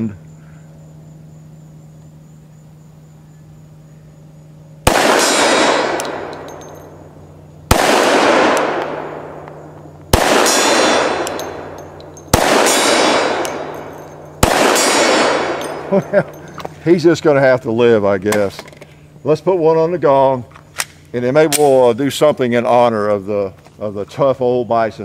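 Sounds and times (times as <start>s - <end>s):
pistol shots with rolling echo: 4.8s - 16.4s
metallic ring of steel target: 4.9s - 16.7s.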